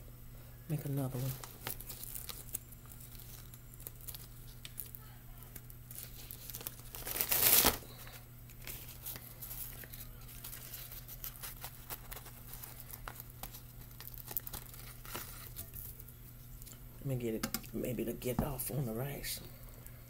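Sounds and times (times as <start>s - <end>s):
seaweed sheets and packet crinkling: 1.1s - 16.8s.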